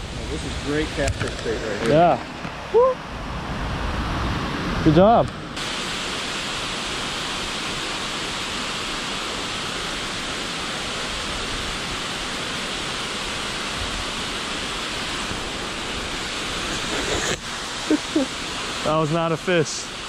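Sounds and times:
creek water rushing: 0.0s - 20.0s.

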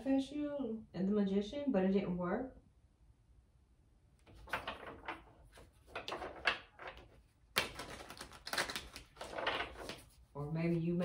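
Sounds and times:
cards slapping: 4.2s - 10.2s
cards rustling while shuffled: 4.2s - 11.0s.

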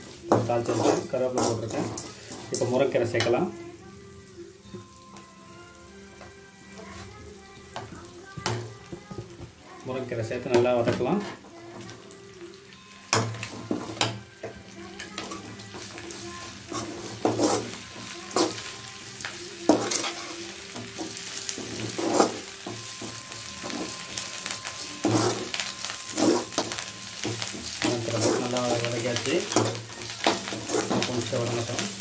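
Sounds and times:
vegetables sizzling in oil: 0.0s - 32.0s
metal spoon scraping a pan: 0.3s - 3.4s, 15.0s - 18.7s, 19.7s - 31.9s.

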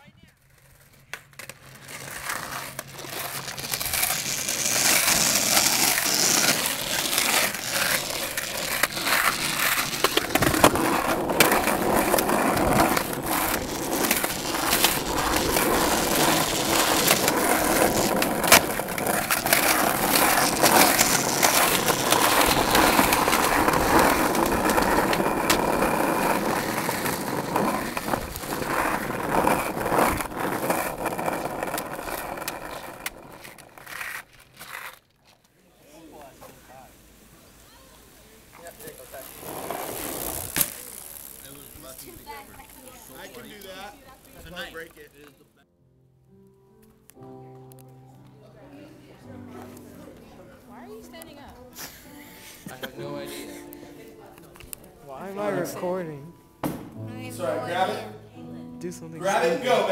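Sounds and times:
skateboard wheels rolling on asphalt: 0.0s - 45.6s, 46.8s - 56.6s, 59.2s - 59.9s
skateboard clacks and knocks: 0.4s - 34.9s.

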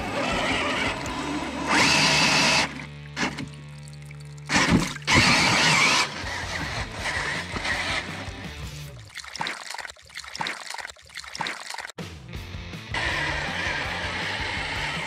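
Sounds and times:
rc car motor churning through water: 0.0s - 12.0s, 12.9s - 15.0s
background music: 12.0s - 15.0s.

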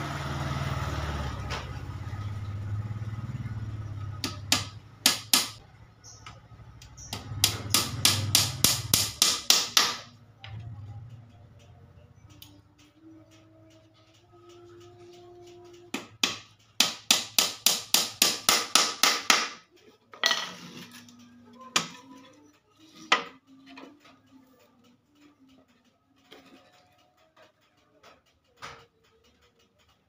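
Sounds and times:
hammer tapping nails into wood: 4.2s - 5.6s, 7.0s - 10.1s, 15.9s - 19.7s.

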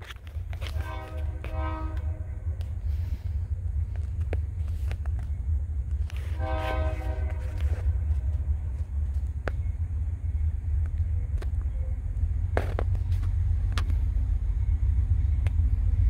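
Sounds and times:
low rumble: 0.0s - 16.0s
locomotive air horn: 0.5s - 3.4s, 6.1s - 8.7s.

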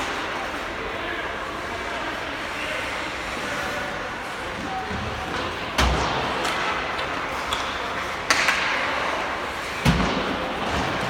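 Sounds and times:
hockey sticks and puck knocking: 4.9s - 11.0s.

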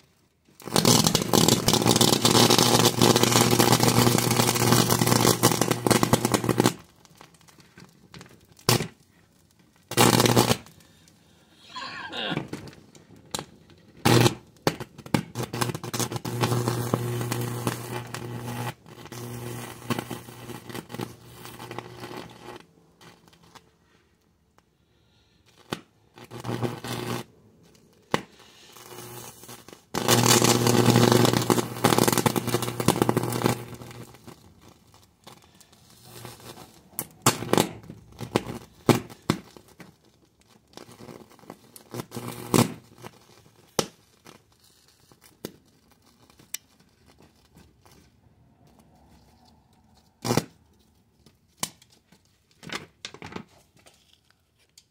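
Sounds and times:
fire crackling: 0.0s - 52.6s
flames rushing: 0.6s - 6.8s.

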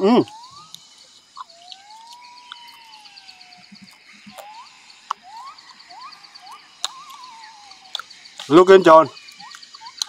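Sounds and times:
fast-pulsing insect trill: 0.0s - 10.0s
sharp clicks: 0.2s - 10.0s
short rising whistled animal calls: 1.4s - 8.1s.

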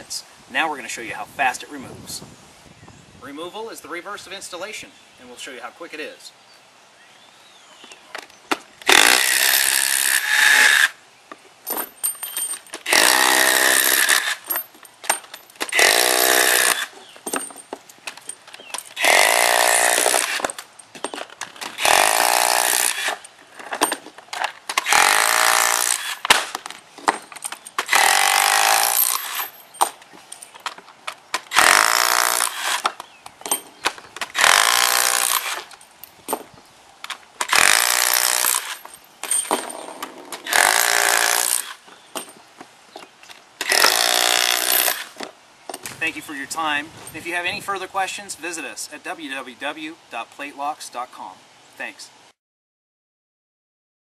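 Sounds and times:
cordless driver motor bursts: 12.9s - 14.4s.

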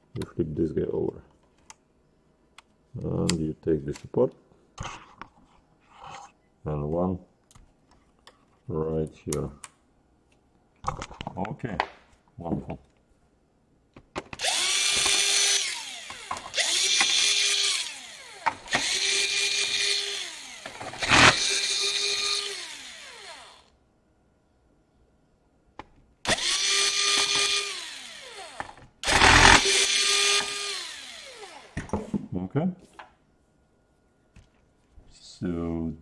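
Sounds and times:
cordless drill whining: 14.4s - 23.7s, 26.3s - 31.8s.

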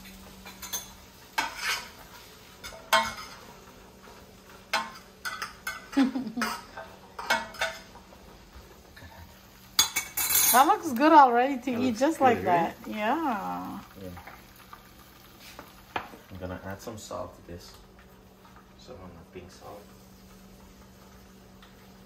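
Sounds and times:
utensil scraping and knocking pot: 1.4s - 2.0s.

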